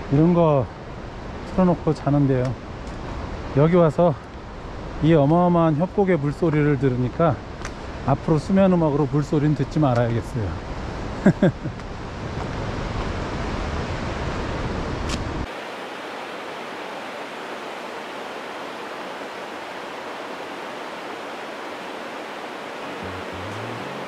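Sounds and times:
river whitewater rushing: 0:15.5 - 0:24.0
faint music: 0:22.8 - 0:24.0.

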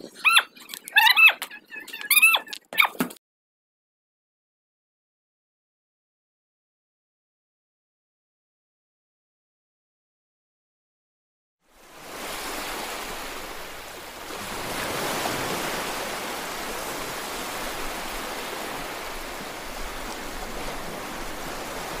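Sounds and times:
ocean surf on beach: 0:11.6 - 0:22.0.

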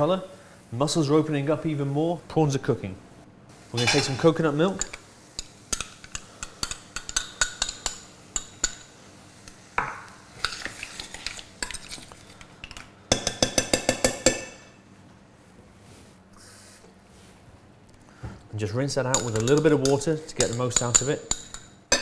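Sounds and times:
metal spoon scraping a pan: 0:03.8 - 0:08.9, 0:10.4 - 0:12.2.

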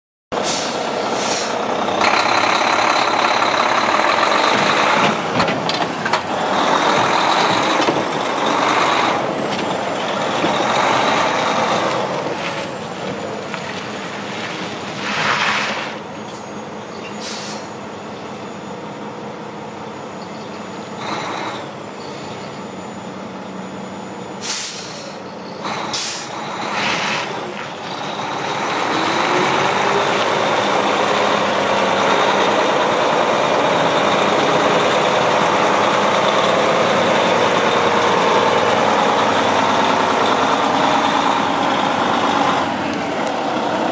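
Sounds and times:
air brake hisses: 0:00.4 - 0:01.6, 0:17.2 - 0:17.7, 0:24.4 - 0:25.3, 0:25.9 - 0:27.3
truck diesel engine running: 0:00.4 - 0:15.2, 0:15.9 - 0:43.9.

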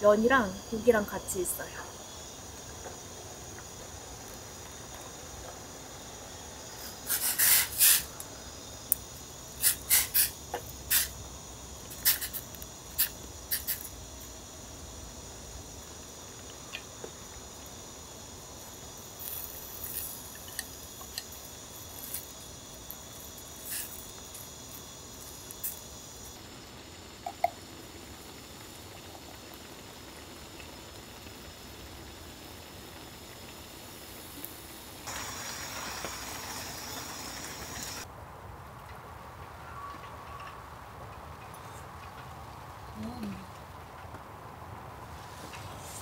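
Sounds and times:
faint high hiss: 0:00.0 - 0:38.1
liquid dripping and pouring: 0:27.2 - 0:27.6.

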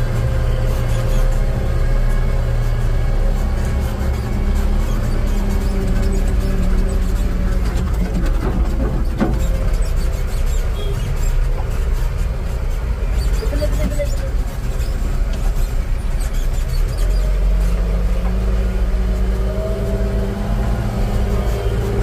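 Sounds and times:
diesel engine rumbling: 0:00.0 - 0:22.0.

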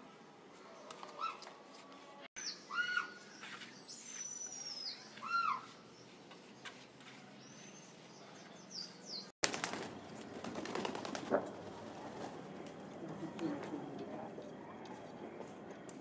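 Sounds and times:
birds chirping: 0:02.4 - 0:11.0
pigeons flapping wings: 0:09.4 - 0:13.7.

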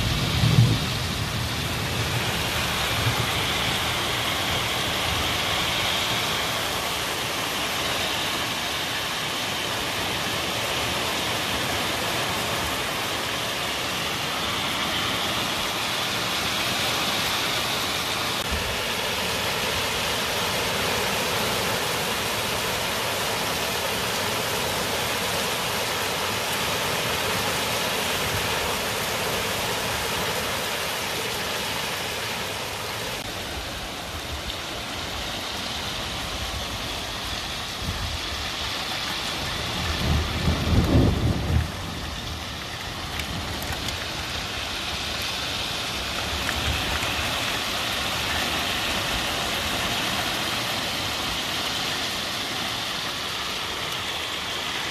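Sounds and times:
thunder rumble: 0:00.0 - 0:04.9, 0:39.4 - 0:44.4
heavy rain falling: 0:00.0 - 0:54.9.

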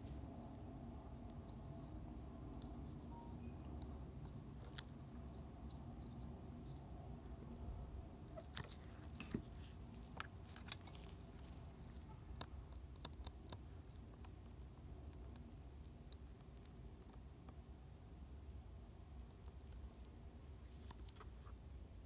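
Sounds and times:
low steady hum: 0:00.0 - 0:22.0
faint tool clicks and ticks: 0:08.6 - 0:17.6.

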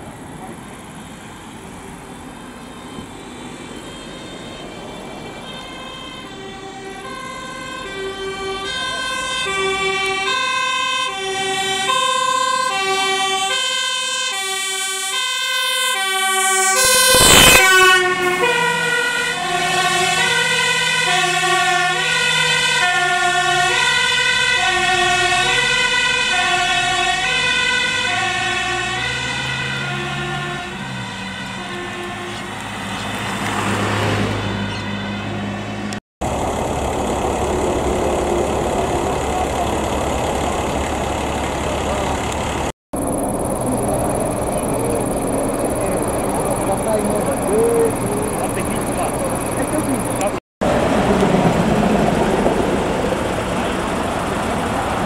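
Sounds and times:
diesel engine: 0:00.0 - 0:55.0
fire engine two-tone siren: 0:01.1 - 0:55.0
vehicle passing with loud rush: 0:32.3 - 0:55.0.

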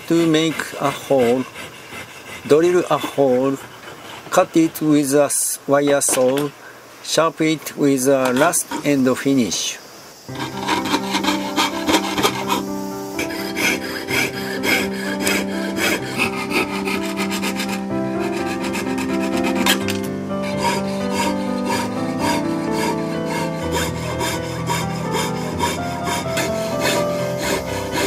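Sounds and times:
wire saw rasping through brass: 0:00.0 - 0:04.7, 0:08.2 - 0:09.0, 0:10.3 - 0:28.0
background music of held notes: 0:10.3 - 0:28.0.

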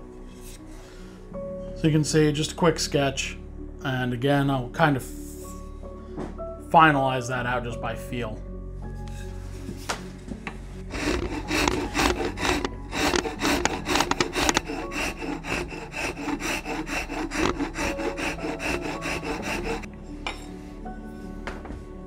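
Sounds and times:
background music: 0:00.0 - 0:22.0
hand file scraping wood: 0:10.8 - 0:19.9.

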